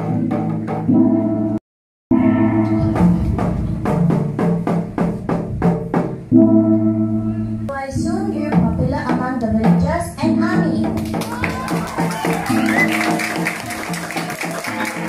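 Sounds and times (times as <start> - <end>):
held chords: 0.0 - 15.0
regular drum strikes: 2.1 - 15.0.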